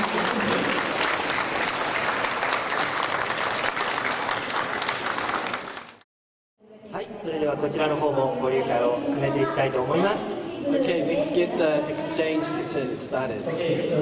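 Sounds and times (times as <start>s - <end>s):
crowd applauding: 0.0s - 6.0s.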